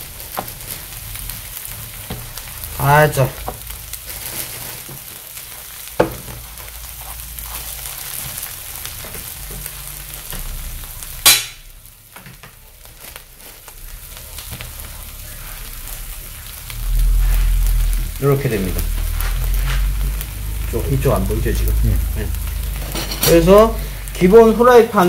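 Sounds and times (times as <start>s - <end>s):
meat sizzling on a griddle: 0.0s - 25.0s
sharp knock: 11.3s - 11.6s
loud burst of noise: 13.8s - 24.1s.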